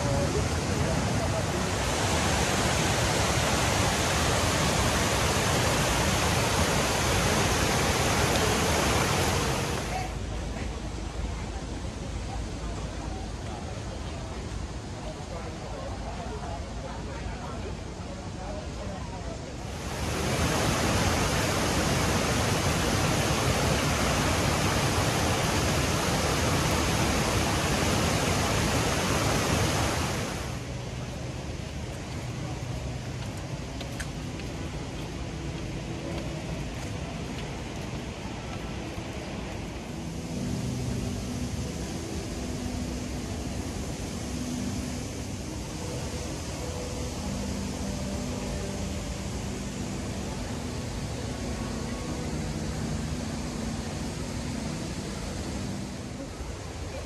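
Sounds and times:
fountain water pouring over stone: 0:00.0 - 0:10.2, 0:19.6 - 0:33.3
fountain water splashing: 0:00.0 - 0:57.0.

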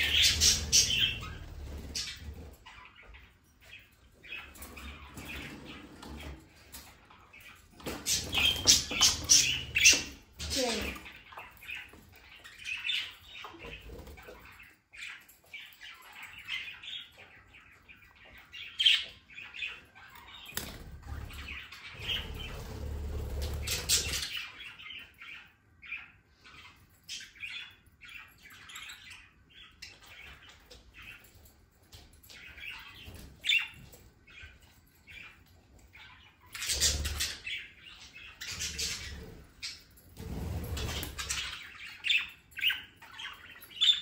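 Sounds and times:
budgerigars chirping: 0:00.0 - 0:03.3.

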